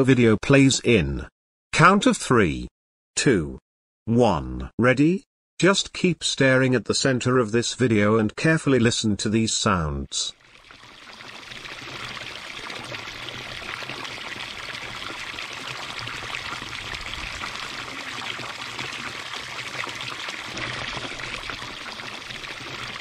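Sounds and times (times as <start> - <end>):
running water pouring: 10.3 - 23.0.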